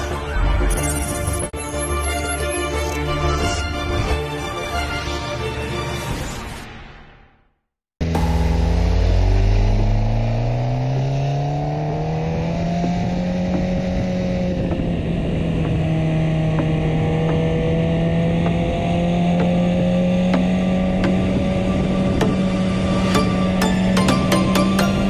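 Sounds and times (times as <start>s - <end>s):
motorcycle engine revving uphill: 8.0s - 25.0s
wind noise on microphone: 13.0s - 16.1s.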